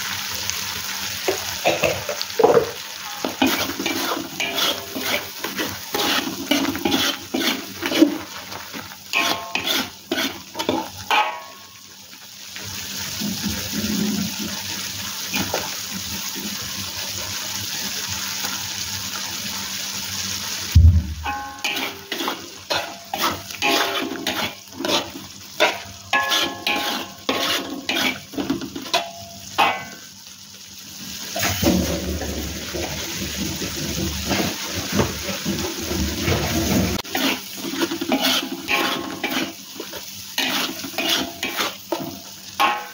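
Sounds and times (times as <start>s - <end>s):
paste sizzling in oil: 0.0s - 42.9s
metal spatula scraping a wok: 3.0s - 11.6s, 21.2s - 30.0s, 31.4s - 42.9s
low thump: 20.8s - 21.3s.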